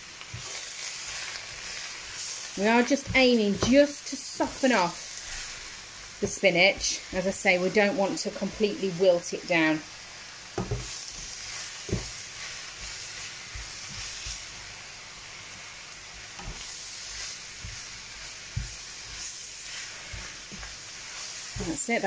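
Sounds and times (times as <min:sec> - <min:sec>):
food sizzling in frying pan: 0:00.0 - 0:22.0
wooden spoon knocking pan: 0:03.0 - 0:03.9, 0:10.6 - 0:10.9.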